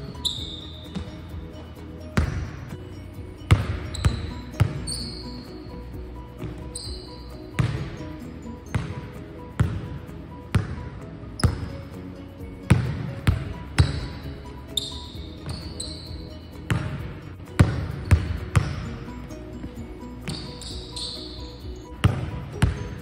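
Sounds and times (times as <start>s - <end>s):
sneaker squeaks: 0.0s - 12.0s, 12.7s - 23.0s
basketball bouncing on wooden floor: 0.2s - 2.7s, 3.4s - 5.2s, 6.4s - 7.0s, 7.6s - 8.0s, 8.7s - 11.8s, 12.6s - 19.0s, 20.2s - 20.9s, 22.0s - 23.0s.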